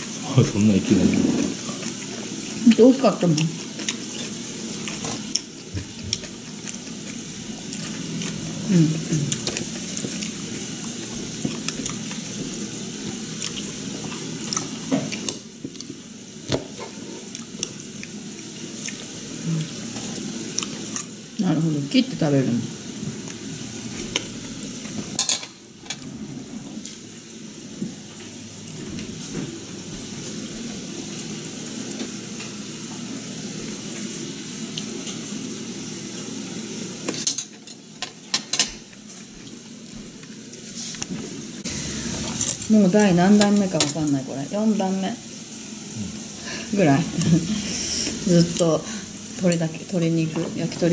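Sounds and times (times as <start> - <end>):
chicken sizzling in oil: 0.0 - 25.8, 40.4 - 50.0
chewing: 1.0 - 16.0, 16.7 - 21.2.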